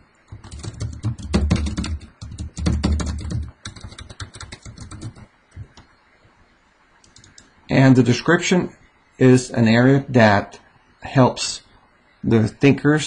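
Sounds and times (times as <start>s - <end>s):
fast keyboard typing: 0.3s - 5.8s, 7.1s - 7.4s.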